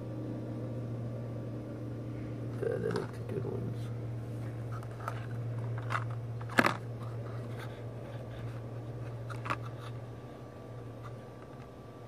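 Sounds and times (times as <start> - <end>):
steady low hum: 0.0 - 12.0
handling clicks and crinkles: 2.8 - 3.3, 4.4 - 10.2, 10.8 - 11.8.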